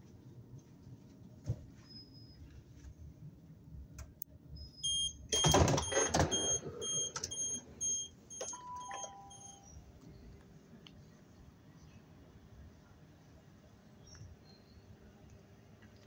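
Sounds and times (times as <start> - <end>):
train door warning beeps: 4.6 - 9.9
automatic doors sliding open: 4.8 - 9.8.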